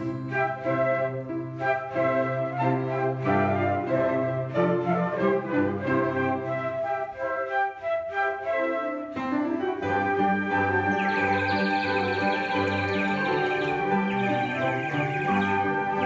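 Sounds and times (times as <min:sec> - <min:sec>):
flutes playing in harmony: 0:00.0 - 0:16.0
cello bass line: 0:13.1 - 0:16.0.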